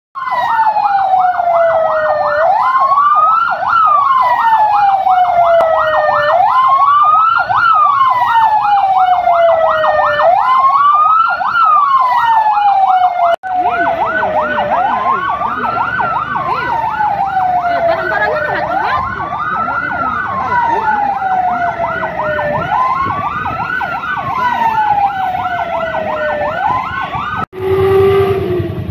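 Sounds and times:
siren yelp and wail: 0:00.2 - 0:28.9.

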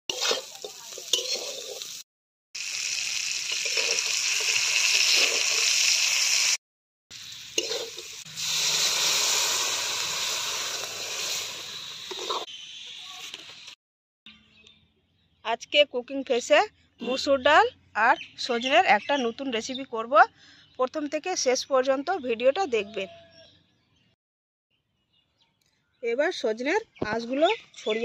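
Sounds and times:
metal spatula scraping pan: 0:00.1 - 0:01.9, 0:07.6 - 0:08.2, 0:12.1 - 0:12.5
food sizzling in oil: 0:00.1 - 0:02.0, 0:02.6 - 0:12.5.

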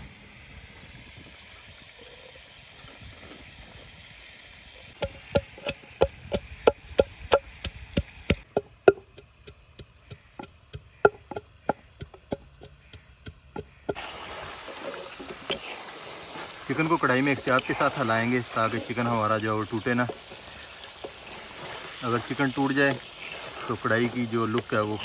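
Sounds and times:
chicken frying in oil: 0:12.6 - 0:25.0.

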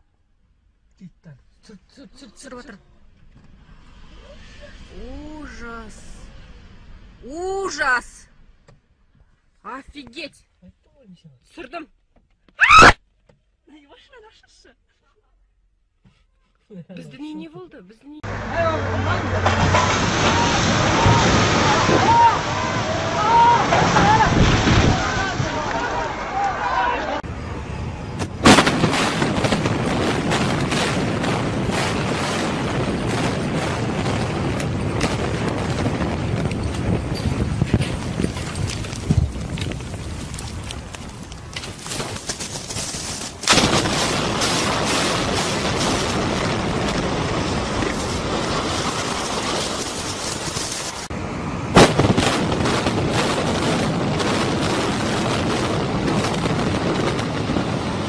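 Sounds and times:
demolition charges cracking: 0:18.2 - 0:27.3, 0:28.1 - 0:51.1, 0:51.7 - 0:58.0
buildings collapsing: 0:18.2 - 0:58.0
rumble of falling masonry: 0:18.3 - 0:26.7, 0:28.2 - 0:51.1, 0:51.7 - 0:58.0.

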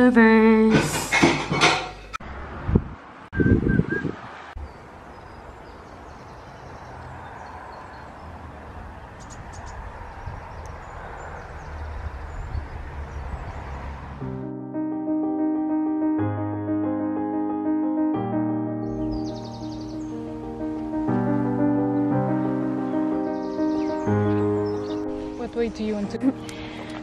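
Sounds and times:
wind rumbling on microphone: 0:02.3 - 0:04.5, 0:08.8 - 0:14.1.

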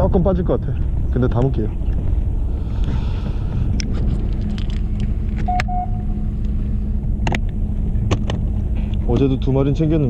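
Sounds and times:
boat engine rumbling: 0:00.0 - 0:10.0
short electronic beeps: 0:05.5 - 0:06.2.

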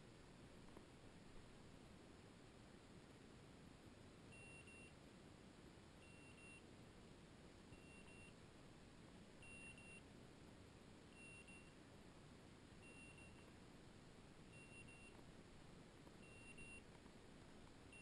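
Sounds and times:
faint high double beeps: 0:04.3 - 0:05.0, 0:06.0 - 0:06.6, 0:07.7 - 0:08.4, 0:09.4 - 0:10.0, 0:11.1 - 0:11.8, 0:12.8 - 0:13.5, 0:14.5 - 0:15.2, 0:16.2 - 0:16.8.

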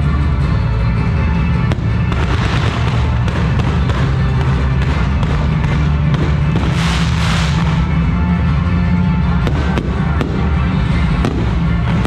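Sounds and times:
loud bass-heavy music: 0:00.0 - 0:12.0
crackle of bursting fireworks: 0:01.3 - 0:12.0
firework sharp report: 0:01.6 - 0:08.3, 0:09.2 - 0:12.0.

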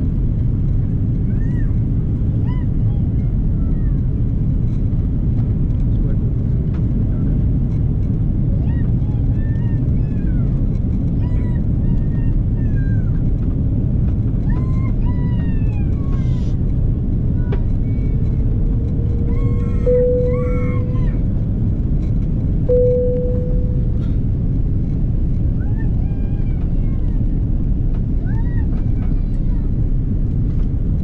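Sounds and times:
airliner cabin rumble: 0:00.0 - 0:31.0
faint passenger voices: 0:05.7 - 0:21.6, 0:22.2 - 0:30.8
short cabin tones: 0:18.6 - 0:24.7.

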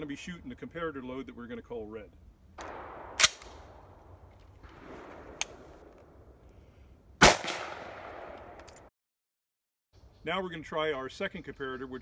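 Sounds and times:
shotgun firing: 0:02.6 - 0:03.9, 0:07.2 - 0:08.6.

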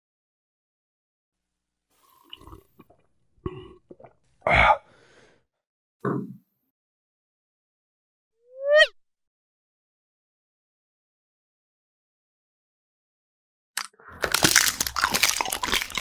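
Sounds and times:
slurps and gulps: 0:02.0 - 0:04.3, 0:13.8 - 0:16.0
rising cartoon tone: 0:08.5 - 0:08.9.

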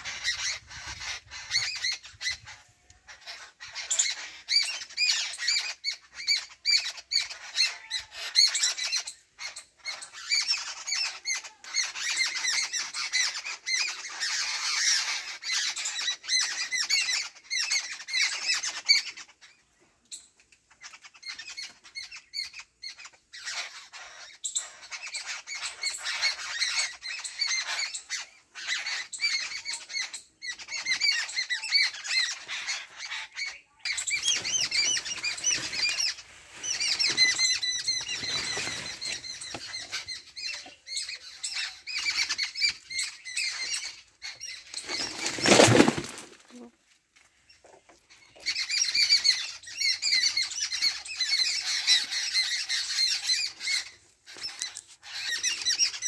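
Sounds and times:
small animals chirping and squeaking: 0:00.0 - 0:56.0
leaves rustling: 0:34.1 - 0:40.4, 0:44.7 - 0:47.0.

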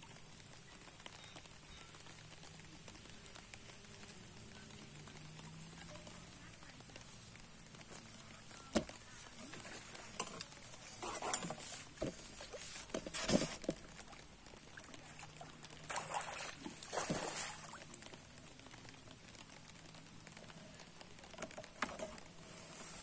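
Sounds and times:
fish splashing at water surface: 0:11.5 - 0:18.1.

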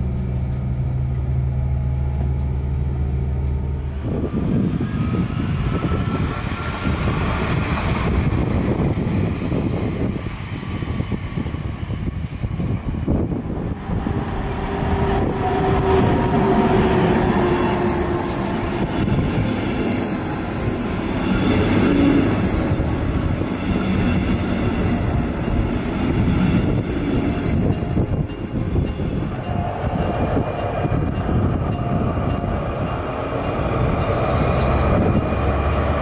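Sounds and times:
train wheels rumbling on rail: 0:00.0 - 0:36.0.

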